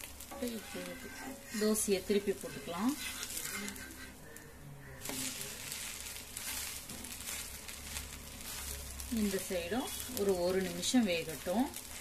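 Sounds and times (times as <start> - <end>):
frying hiss with light crackle: 0.0 - 12.0.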